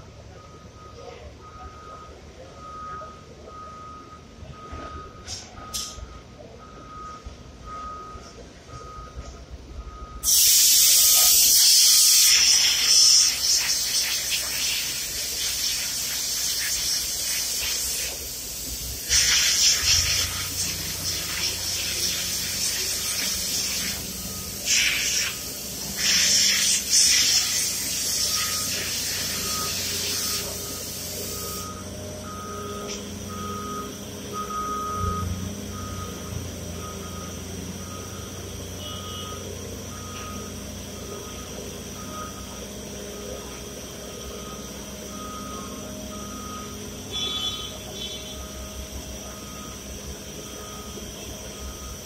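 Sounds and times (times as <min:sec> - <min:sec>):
compressed air hissing: 0:10.2 - 0:31.6
high electronic beep: 0:19.8 - 0:42.6, 0:44.1 - 0:52.0.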